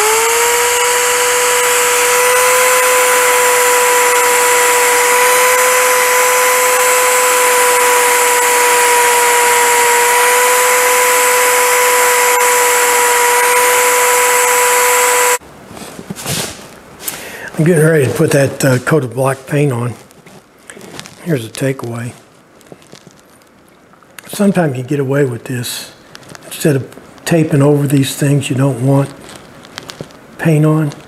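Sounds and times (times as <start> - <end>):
electric drill motor whine: 0.0 - 15.4.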